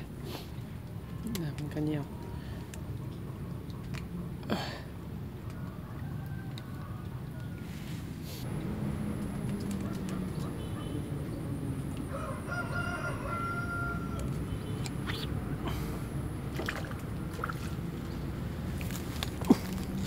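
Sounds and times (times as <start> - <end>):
rooster crowing: 12.0 - 14.4.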